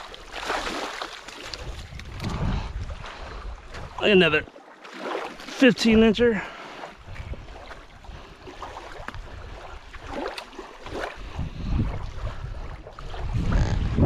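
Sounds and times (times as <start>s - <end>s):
water lapping at shoreline: 0.0s - 14.0s
wind buffeting microphone: 1.4s - 4.4s, 7.0s - 14.0s.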